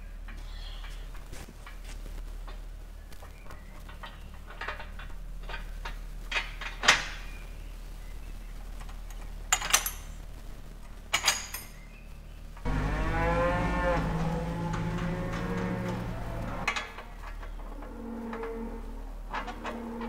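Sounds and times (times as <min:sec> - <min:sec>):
metal clanks and knocks: 0:12.6 - 0:20.0
cow mooing: 0:12.7 - 0:20.0.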